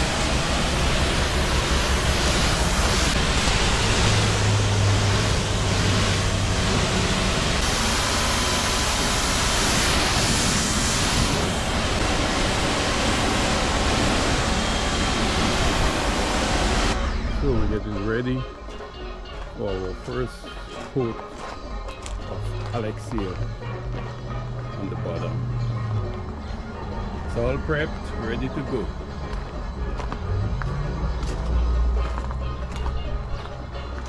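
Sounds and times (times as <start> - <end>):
pressure washer spraying: 0.0 - 17.0
low hum: 0.0 - 20.9.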